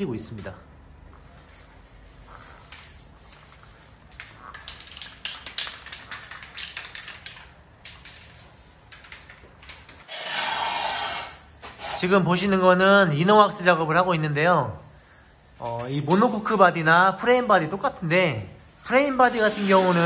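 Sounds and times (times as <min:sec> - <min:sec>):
spray coating hissing: 0:10.0 - 0:12.1, 0:19.2 - 0:20.0.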